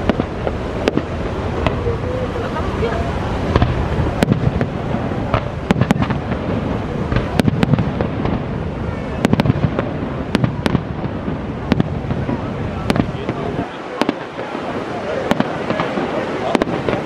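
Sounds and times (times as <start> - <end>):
fireworks bangs and crackles: 0.0 - 17.0
waterfall rushing: 0.0 - 17.0.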